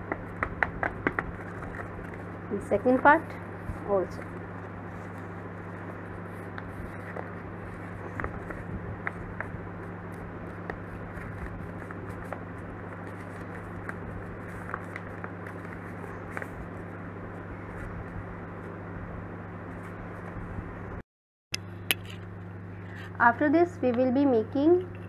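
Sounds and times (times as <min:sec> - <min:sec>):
low hum and hiss: 0:00.0 - 0:21.0, 0:21.6 - 0:25.0
paper crinkling: 0:00.8 - 0:02.3, 0:04.0 - 0:16.9.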